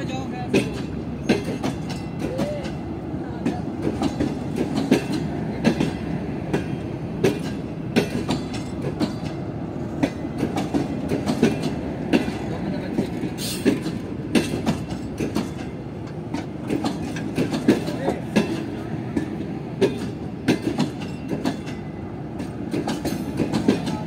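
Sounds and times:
train rumble: 0.0s - 24.0s
train wheels clicking over rail joints: 0.0s - 24.0s.

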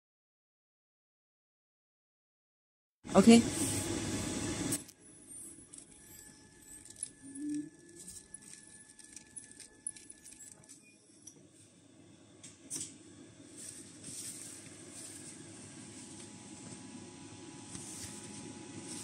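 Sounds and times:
plastic film crinkling: 5.7s - 10.7s
faint high tone: 5.8s - 8.7s.

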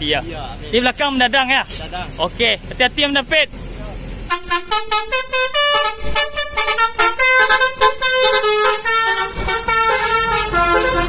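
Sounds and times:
musical air horn tune: 4.3s - 11.0s.

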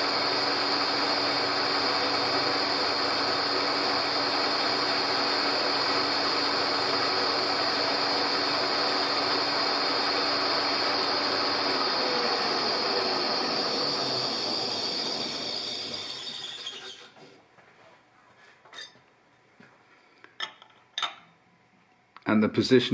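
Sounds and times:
milling machine cutting metal: 0.0s - 17.1s.

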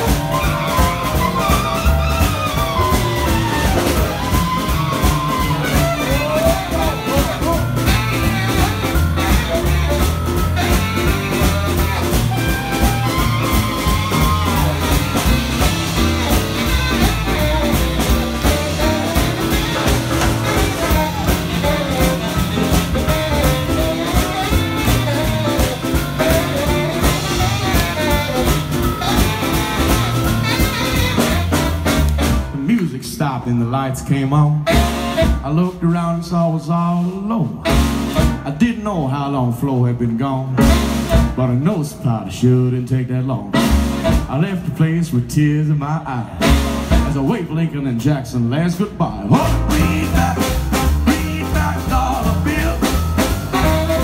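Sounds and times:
saxophone solo: 0.0s - 32.6s, 34.6s - 35.6s, 37.6s - 38.5s, 49.4s - 54.0s
drum kit: 0.0s - 33.1s, 34.6s - 35.8s, 37.0s - 38.8s, 40.6s - 42.0s, 43.5s - 45.2s, 46.4s - 47.8s, 48.7s - 54.0s
piano: 0.0s - 54.0s
upright double bass: 0.0s - 54.0s.

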